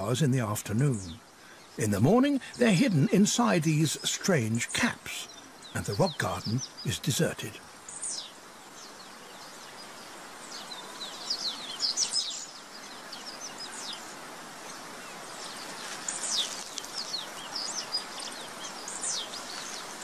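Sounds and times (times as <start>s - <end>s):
outdoor background hiss: 0.0s - 20.0s
small birds chirping: 0.0s - 20.0s.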